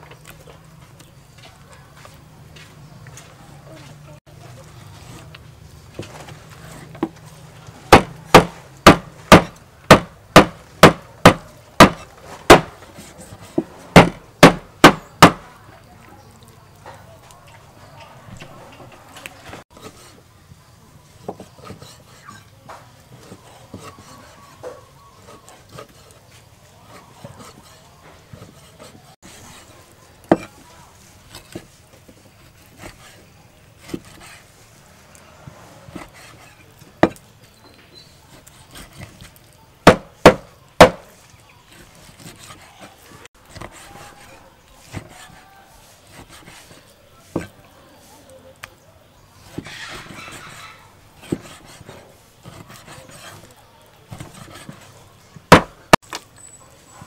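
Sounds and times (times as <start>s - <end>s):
cleaver chopping on wooden board: 7.9s - 12.8s, 13.4s - 15.4s, 30.3s - 30.5s, 39.8s - 41.1s, 51.2s - 53.4s, 55.5s - 56.0s.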